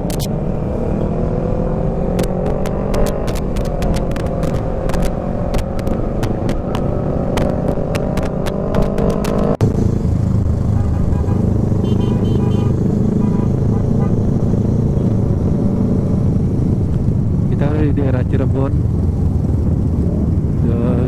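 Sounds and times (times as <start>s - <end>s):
road rumble: 0.0s - 21.0s
wind: 0.0s - 21.0s
sharp ticks: 2.2s - 9.5s.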